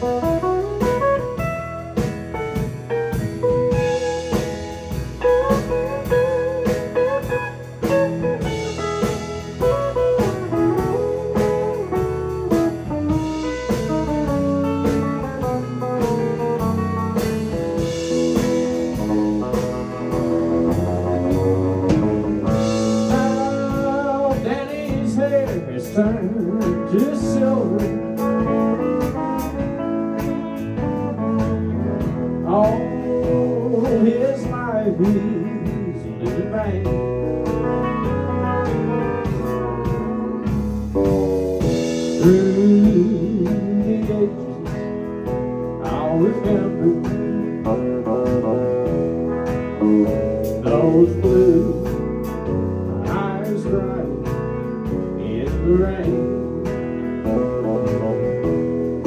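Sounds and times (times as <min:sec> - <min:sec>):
drums: 0:00.0 - 0:59.0
electric bass: 0:00.0 - 0:59.0
electric guitar lead with bends: 0:00.0 - 0:59.0.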